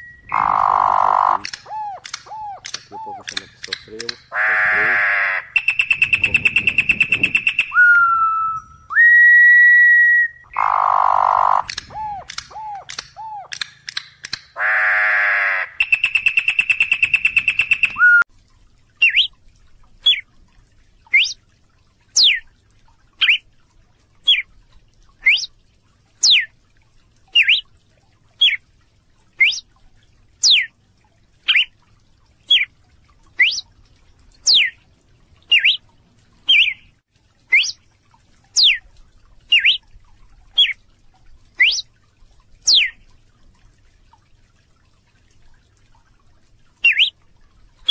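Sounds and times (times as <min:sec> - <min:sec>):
bird singing whistles and trill: 0:00.0 - 0:03.2, 0:05.6 - 0:10.4, 0:15.8 - 0:18.2, 0:19.0 - 0:19.3, 0:21.1 - 0:21.4, 0:25.3 - 0:25.5, 0:27.4 - 0:27.6, 0:29.4 - 0:29.6, 0:31.5 - 0:31.7, 0:33.4 - 0:33.6, 0:35.5 - 0:35.8, 0:36.5 - 0:36.8, 0:37.5 - 0:37.8, 0:38.6 - 0:38.8, 0:39.5 - 0:39.8, 0:41.6 - 0:41.8, 0:46.8 - 0:47.1
bird repeating sharp note: 0:00.0 - 0:08.7, 0:10.6 - 0:18.2.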